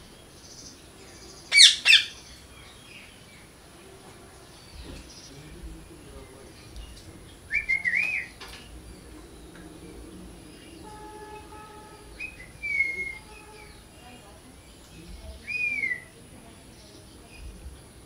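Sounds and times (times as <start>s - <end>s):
parrot warbling call: 1.4s - 2.2s, 10.4s - 14.0s
parrot shrieking: 1.5s - 2.2s, 11.3s - 13.8s.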